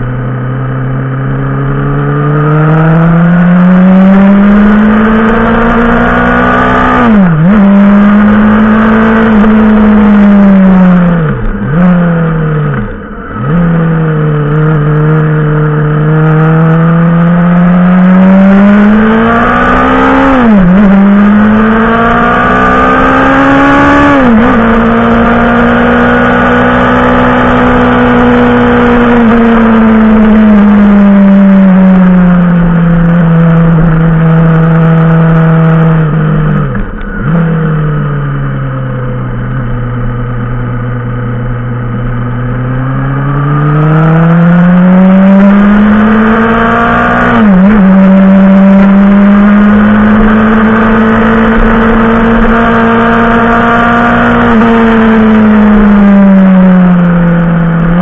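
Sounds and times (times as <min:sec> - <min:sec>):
motorcycle engine pulling uphill: 0:00.0 - 0:58.0.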